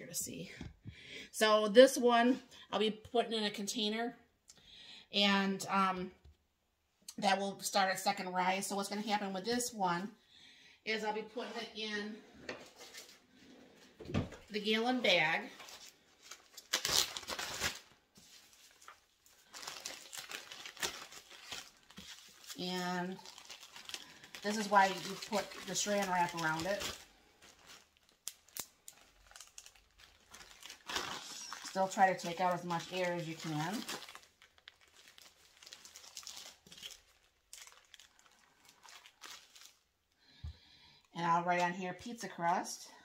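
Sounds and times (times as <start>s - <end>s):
plastic bag crinkling: 14.6s - 40.2s.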